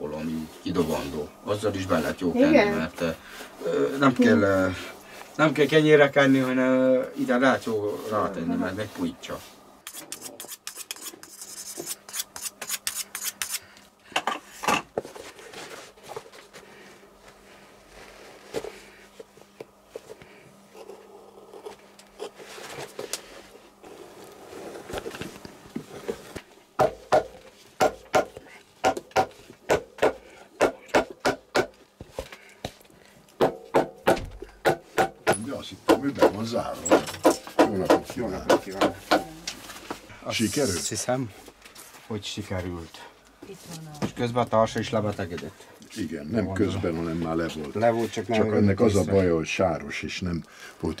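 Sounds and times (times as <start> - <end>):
rasp filing: 9.8 - 13.6.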